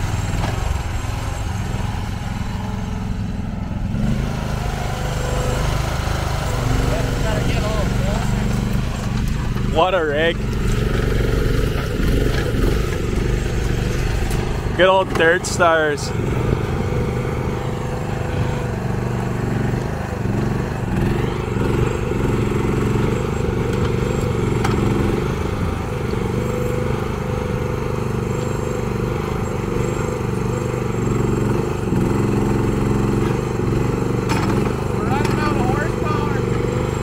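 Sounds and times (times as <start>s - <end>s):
excavator engine running: 0.0s - 37.0s.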